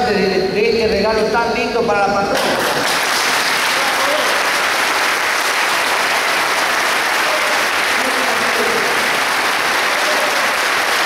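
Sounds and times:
congregation applauding: 2.4s - 11.0s.

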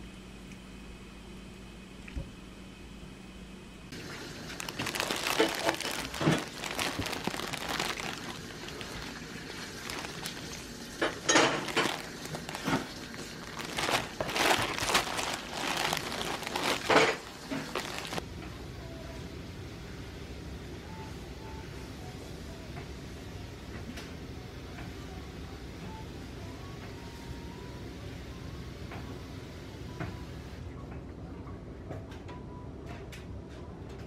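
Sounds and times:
plastic packaging crinkling: 4.0s - 18.2s.

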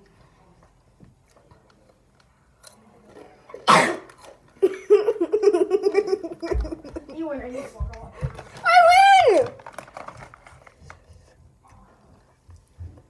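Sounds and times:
person coughing: 3.6s - 4.1s.

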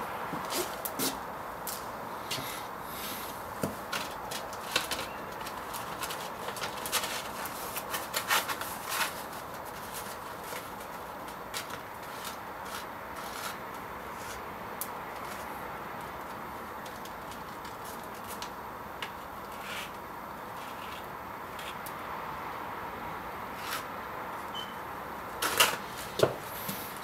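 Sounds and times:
outdoor street hiss: 0.0s - 27.0s
scrapes and clicks on stone paving: 3.9s - 20.0s, 20.6s - 21.9s.

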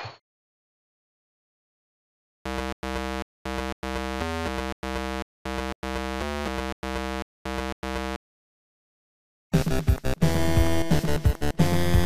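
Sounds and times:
chiptune buzz pulses: 2.5s - 8.2s.

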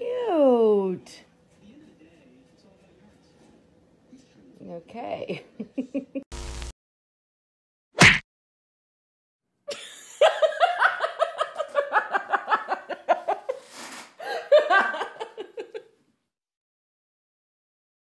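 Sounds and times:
person laughing hard: 14.2s - 15.9s.

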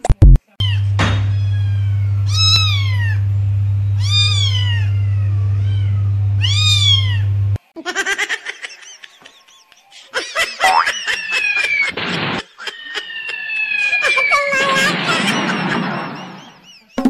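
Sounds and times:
kitten meowing: 0.6s - 3.2s, 4.0s - 7.3s
steady low hum: 0.6s - 7.6s.

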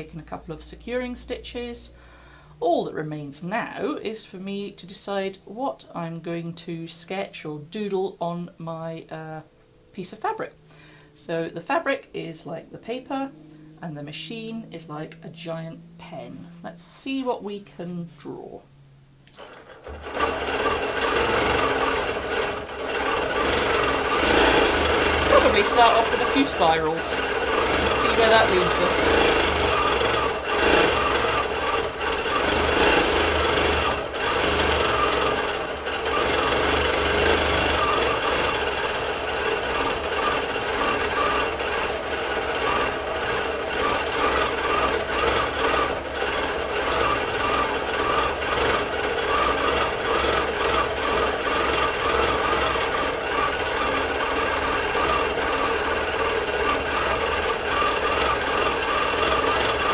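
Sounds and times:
quilting machine stitching: 19.3s - 59.9s.

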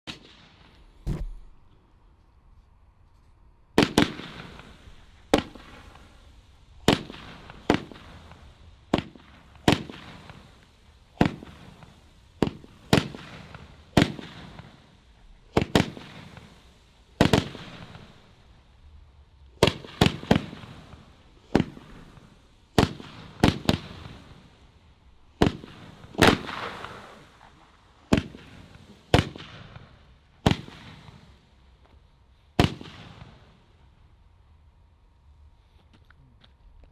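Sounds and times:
roman candles firing: 3.8s - 18.4s, 25.3s - 31.4s.

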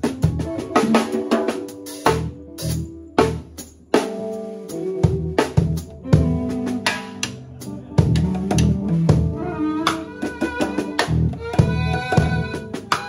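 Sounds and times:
electric violin: 0.0s - 3.4s, 4.0s - 13.0s
electric bass line: 0.0s - 4.1s, 4.7s - 12.9s
drum kit hits: 0.0s - 4.4s, 5.0s - 13.0s
guitar: 0.0s - 13.0s.

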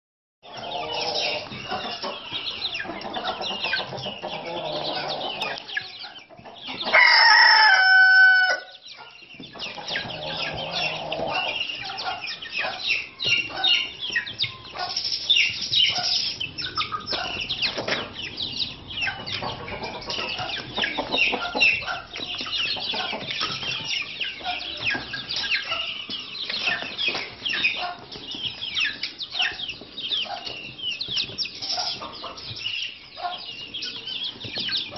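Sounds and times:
chickens clucking and peeping: 0.4s - 34.9s
young rooster crowing: 6.9s - 8.8s.

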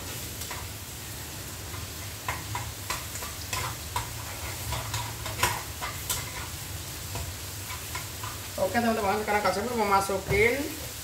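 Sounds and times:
eggs sizzling in a pan: 0.0s - 11.0s
plastic spatula tapping and scraping pan: 2.2s - 6.5s.

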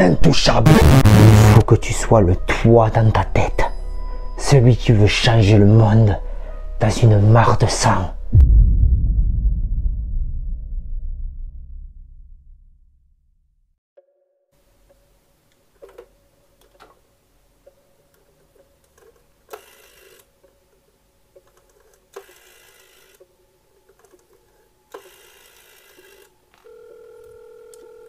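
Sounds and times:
rotary dial whirring: 19.0s - 20.3s, 21.7s - 23.3s, 24.9s - 28.0s
dial tone: 26.0s - 28.0s.

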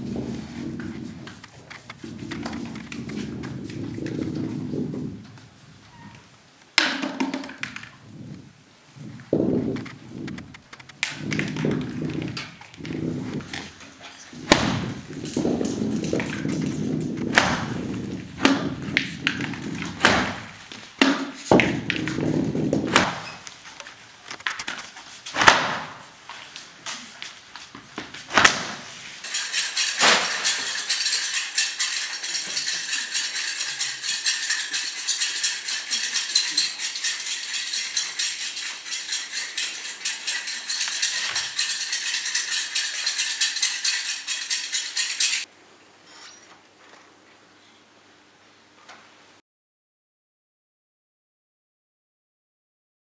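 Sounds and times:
plastic sheet rustling and crackling: 0.0s - 5.9s, 7.9s - 43.7s
objects knocking on wooden floor: 6.8s - 8.0s, 18.4s - 23.2s.

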